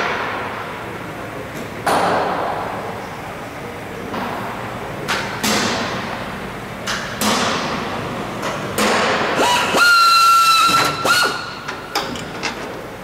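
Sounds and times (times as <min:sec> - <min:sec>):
air drill whining: 0:09.4 - 0:11.6.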